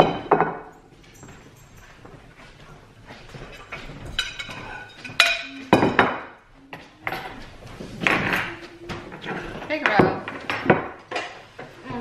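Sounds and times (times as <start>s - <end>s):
plates and forks clattering: 0.0s - 1.9s, 3.4s - 6.4s, 7.0s - 11.5s.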